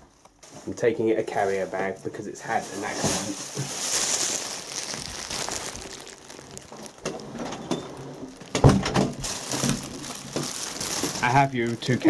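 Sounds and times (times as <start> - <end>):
plastic bag crinkling: 0.0 - 12.0
handling noise: 2.5 - 12.0.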